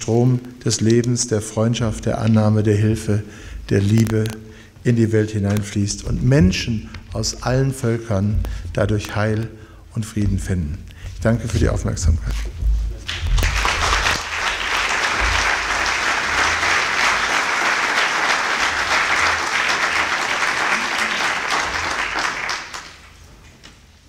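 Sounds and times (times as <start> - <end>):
audience applauding: 13.0 - 23.2.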